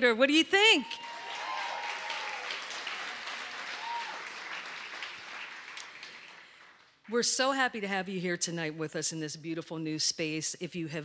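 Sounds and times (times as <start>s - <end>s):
audience applauding: 0.9s - 7.0s.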